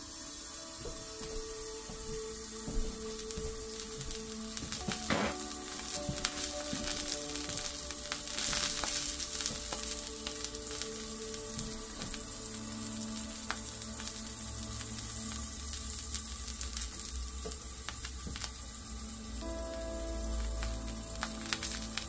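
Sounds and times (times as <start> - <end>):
burger patties sizzling: 0.0 - 22.0
fat popping and crackling: 3.2 - 17.1, 20.3 - 22.0.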